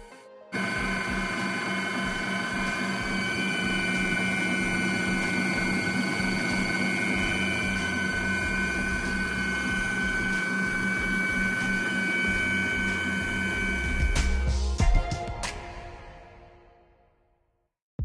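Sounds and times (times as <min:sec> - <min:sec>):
stand mixer motor whine: 0:00.6 - 0:14.5.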